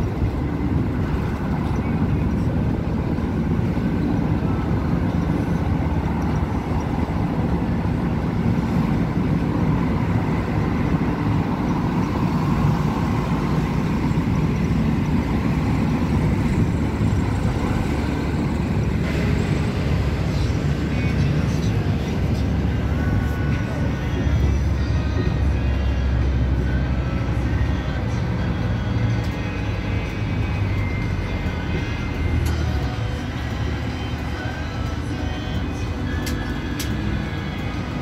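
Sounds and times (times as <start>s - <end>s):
vehicle and road rumble: 0.0s - 38.0s.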